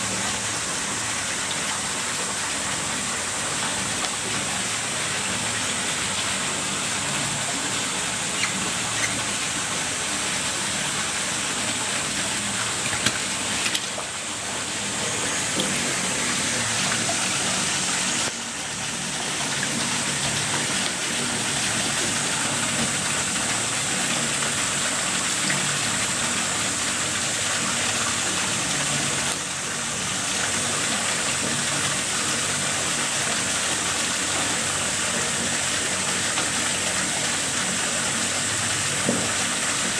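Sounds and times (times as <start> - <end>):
running water rushing: 0.0 - 39.9.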